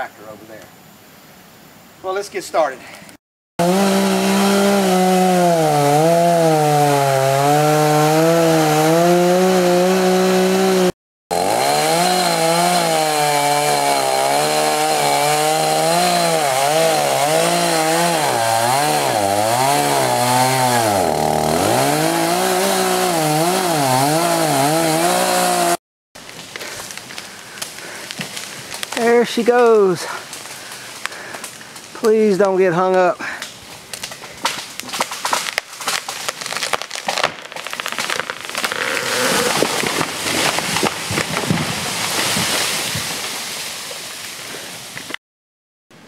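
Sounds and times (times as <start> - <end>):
chainsaw cutting wood: 3.6 - 29.0, 33.9 - 45.2.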